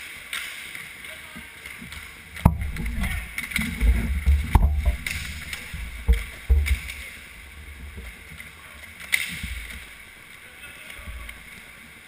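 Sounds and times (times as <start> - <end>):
low knocks and rumbles: 2.4 - 8.1
rink noise: 2.4 - 8.3.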